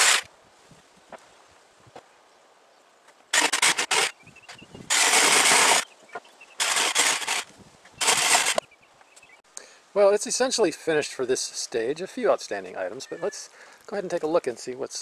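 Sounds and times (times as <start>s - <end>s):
cordless drill driving screws: 0.0s - 0.3s, 3.3s - 4.1s, 4.9s - 5.9s, 6.6s - 8.6s.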